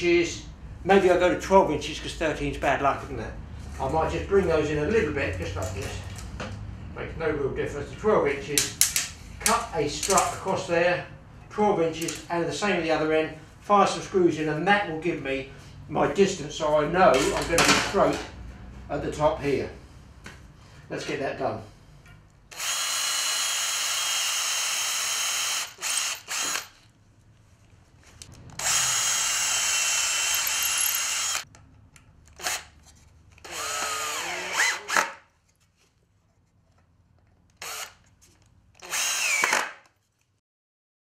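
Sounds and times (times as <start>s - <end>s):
cordless drill driving screws: 22.5s - 26.8s, 28.5s - 31.4s, 32.3s - 32.8s, 33.4s - 35.2s, 37.6s - 38.0s, 38.8s - 39.9s.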